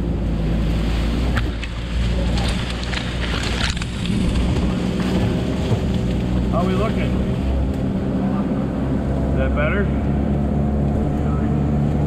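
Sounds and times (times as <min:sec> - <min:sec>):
diesel engine running: 0:00.0 - 0:12.0
branches snapping and scraping: 0:01.2 - 0:06.5.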